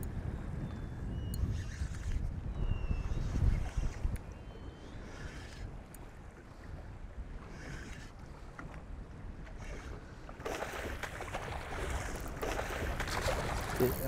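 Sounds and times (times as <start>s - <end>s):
water lapping around boat: 0.0s - 14.0s
wind on microphone: 0.0s - 14.0s.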